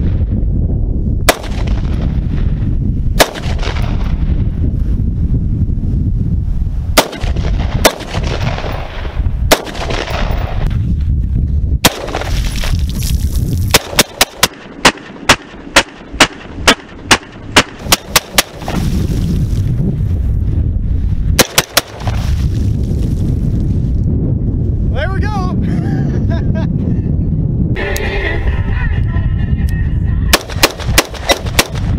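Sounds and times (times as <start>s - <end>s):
rifle shots: 1.3s - 2.1s, 3.2s - 4.1s, 7.0s - 10.7s, 11.8s - 12.4s, 13.7s - 18.9s, 21.4s - 22.2s, 30.3s - 31.9s.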